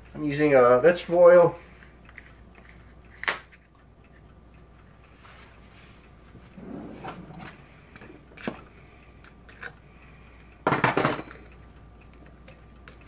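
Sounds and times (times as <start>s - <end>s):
kitchenware clattering: 10.7s - 11.4s.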